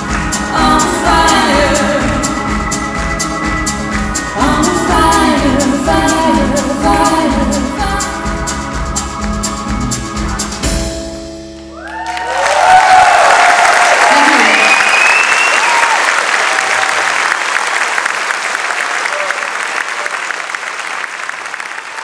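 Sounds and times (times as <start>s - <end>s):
audience applause: 0.0s - 4.6s, 11.7s - 22.0s
steady drum beat: 0.0s - 11.4s
double bass: 0.0s - 11.8s
female lead vocals: 0.2s - 2.6s, 4.3s - 8.6s.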